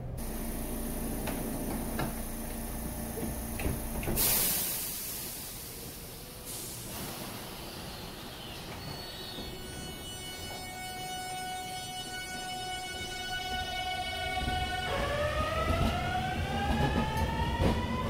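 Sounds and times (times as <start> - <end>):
train low hum: 0.0 - 18.0
train door closing: 0.2 - 18.0
loud hiss of air: 4.0 - 8.5.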